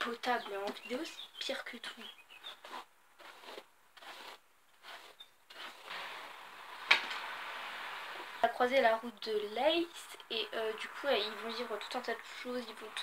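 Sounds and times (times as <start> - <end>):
hairbrush strokes through hair: 2.5 - 6.6
steady hiss: 5.8 - 8.9.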